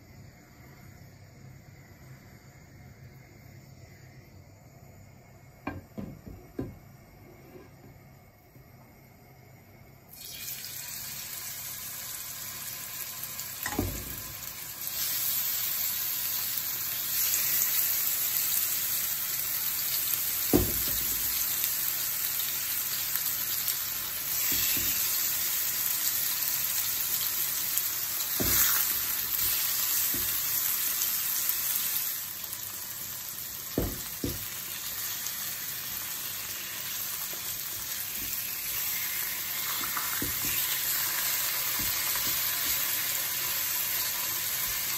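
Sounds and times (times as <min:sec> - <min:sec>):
chicken sizzling in frying pan: 0:10.1 - 0:44.9
knocks against pan: 0:33.8 - 0:34.4.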